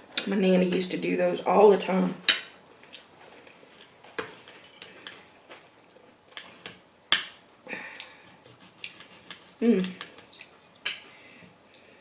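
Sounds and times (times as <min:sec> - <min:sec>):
knife and fork scraping a plate: 0:08.4 - 0:10.2.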